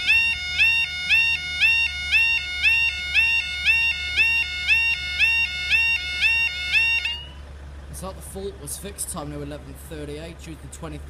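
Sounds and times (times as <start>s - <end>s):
level crossing two-tone alarm: 0.0s - 7.4s.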